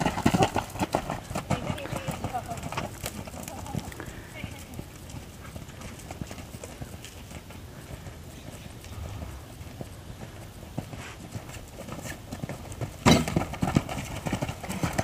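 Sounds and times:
horse hoofbeats on sand: 0.0 - 15.0
horse landing thump: 13.0 - 13.8.

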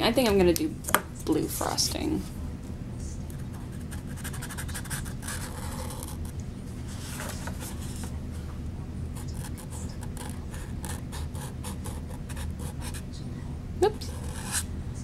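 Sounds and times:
low steady hum: 0.0 - 15.0
marker scribbling on paper cup: 3.7 - 6.1, 14.1 - 14.6.

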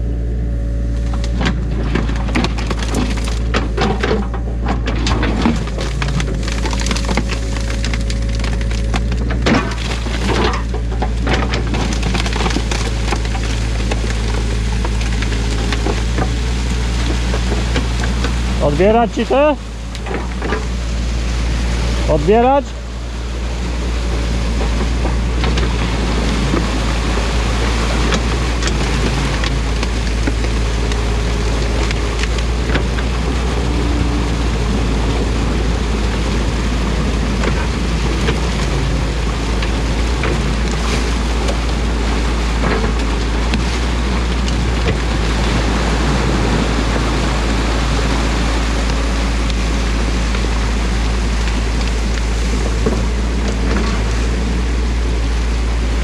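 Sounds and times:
excavator engine running: 0.0 - 56.0
muddy water rushing: 0.0 - 56.0
sticks knocking and snapping: 1.1 - 20.8.

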